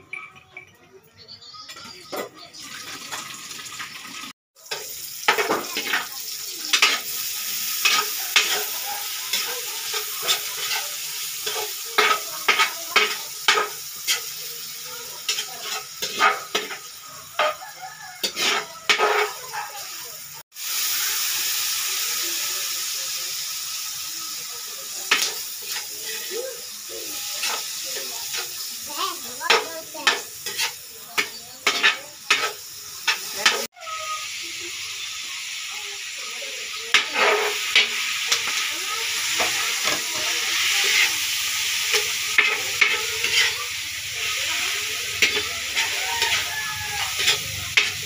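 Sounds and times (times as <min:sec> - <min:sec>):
meat sizzling in a wok: 0:01.8 - 0:48.0
metal ladle scraping a pan: 0:04.7 - 0:19.5, 0:25.1 - 0:28.7, 0:29.5 - 0:33.7, 0:36.9 - 0:40.0, 0:40.6 - 0:43.9, 0:44.8 - 0:48.0.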